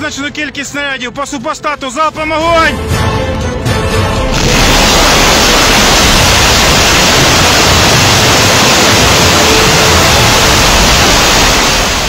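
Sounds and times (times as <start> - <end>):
rocket launches roaring: 4.3 - 12.0.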